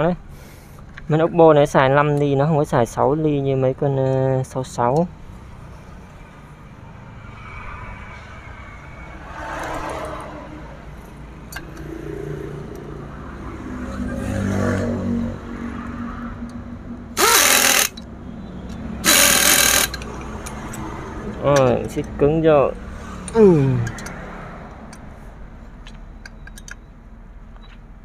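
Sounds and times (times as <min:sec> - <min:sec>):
power tool bursts: 0:17.2 - 0:18.0, 0:19.0 - 0:20.0.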